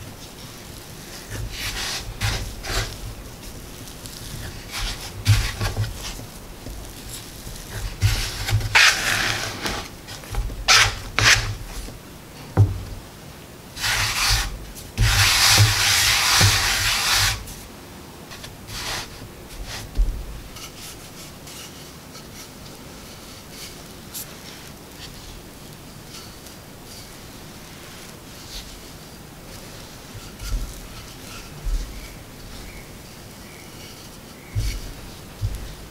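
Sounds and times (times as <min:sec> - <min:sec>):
hands brushing flour on wooden board: 0:00.0 - 0:35.9
dough knocking on board: 0:12.6 - 0:13.0, 0:34.6 - 0:35.9.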